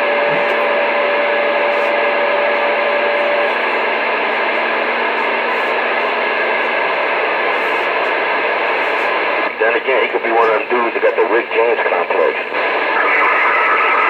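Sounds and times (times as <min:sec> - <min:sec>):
radio static: 0:00.0 - 0:14.0
steady whistle tone: 0:12.8 - 0:14.0.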